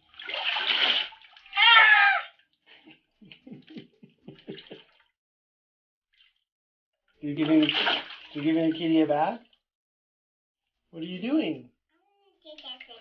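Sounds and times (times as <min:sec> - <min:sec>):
water splashing in a bath: 0:00.0 - 0:05.2, 0:06.1 - 0:06.5, 0:07.1 - 0:09.6
cat yowling: 0:01.5 - 0:02.3.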